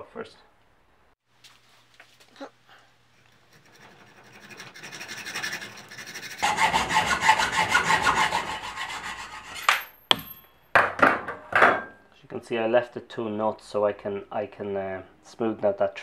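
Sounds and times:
hacksaw cutting steel rod: 0:03.5 - 0:09.9
metallic ring: 0:09.6 - 0:10.7.

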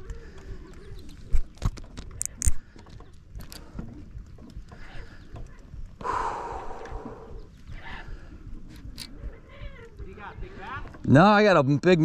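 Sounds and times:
fishing reel clicks and knocks: 0:01.1 - 0:04.8.

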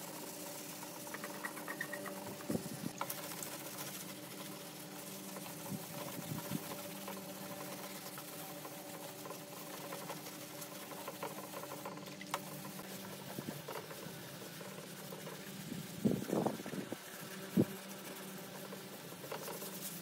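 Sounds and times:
sandpaper rubbing on panel: 0:12.5 - 0:20.0.

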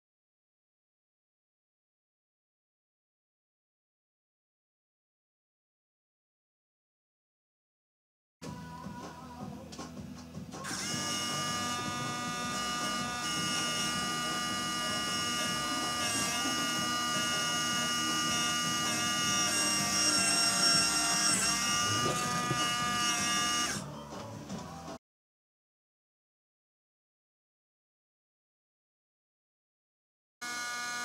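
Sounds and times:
small electric motor whining: 0:10.6 - 0:23.9, 0:30.4 - 0:31.0.

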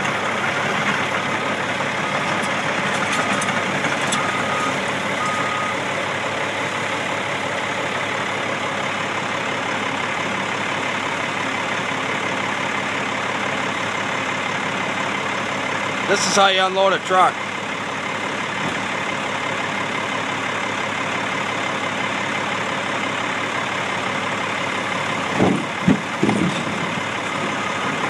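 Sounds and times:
excavator diesel engine running: 0:00.0 - 0:28.0
backup alarm beeping: 0:04.2 - 0:05.8.

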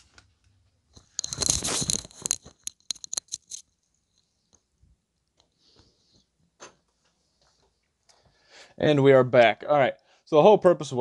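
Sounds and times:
sharp clicks and crackles: 0:00.1 - 0:04.6.

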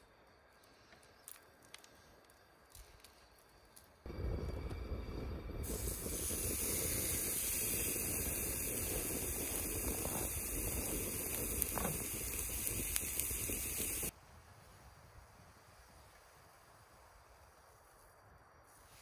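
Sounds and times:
sharp crackles: 0:00.0 - 0:14.1
low rumble: 0:04.1 - 0:12.4
steak sizzling on grill pan: 0:05.7 - 0:14.1.

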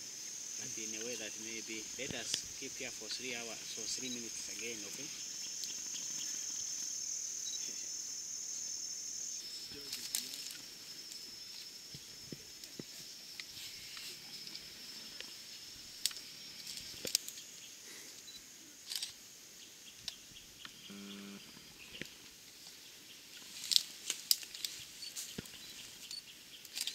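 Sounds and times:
high insect buzz: 0:00.0 - 0:26.9
rustling and snapping of stems: 0:16.0 - 0:17.4, 0:23.4 - 0:25.6, 0:26.6 - 0:26.9.

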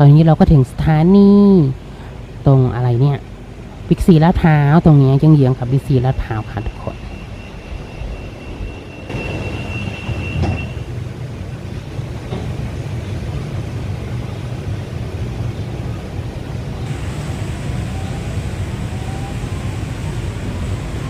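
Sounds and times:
train running rumble: 0:00.0 - 0:21.0
faint rising whine: 0:04.9 - 0:21.0
thin high tone: 0:05.8 - 0:11.0.

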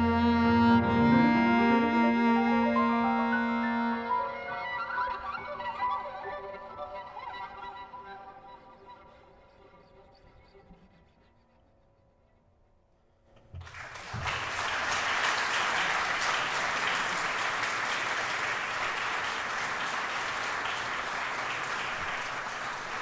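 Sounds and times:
audience applause: 0:13.6 - 0:23.0.

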